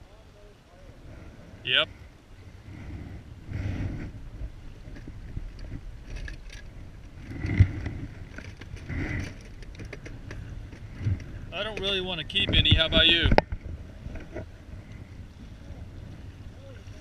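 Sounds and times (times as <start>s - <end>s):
wind buffeting microphone: 0.6s - 17.0s
handling clicks and rustles: 4.8s - 14.5s.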